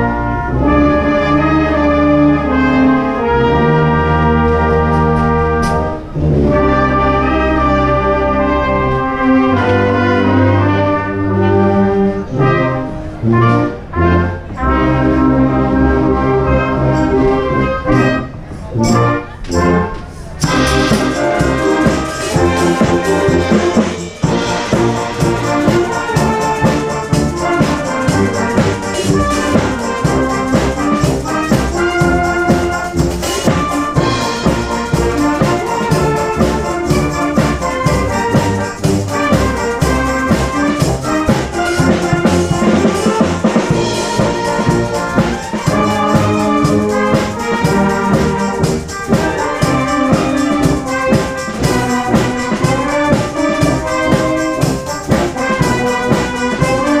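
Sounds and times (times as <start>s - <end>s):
brass band playing: 0.0s - 57.0s
drum kit: 20.4s - 57.0s.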